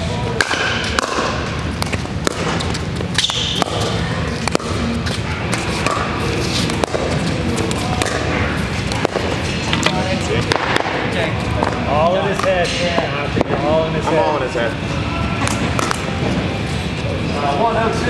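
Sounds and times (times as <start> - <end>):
steady low hum: 0.0 - 18.0
paddles hitting pickleball: 0.4 - 12.8, 15.5 - 16.1.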